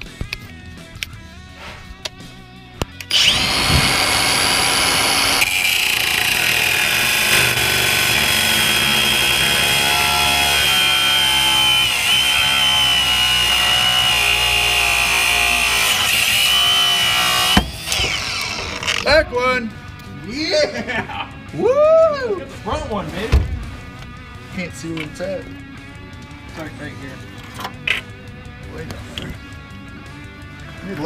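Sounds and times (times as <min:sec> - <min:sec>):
power tool cutting metal: 0:03.1 - 0:19.1.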